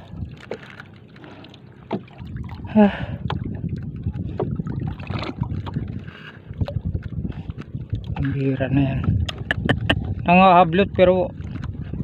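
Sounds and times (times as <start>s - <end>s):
water lapping against boat: 0.0s - 12.0s
sharp knocks on boat: 1.9s - 2.1s.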